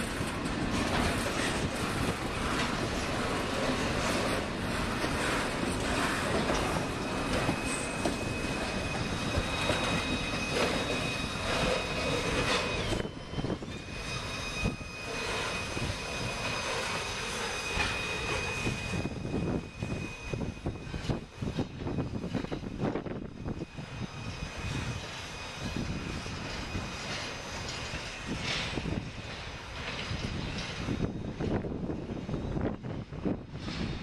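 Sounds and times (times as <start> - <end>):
train cars rolling on steel wheels: 0.0 - 34.0
high-pitched wheel squeal: 1.1 - 29.0.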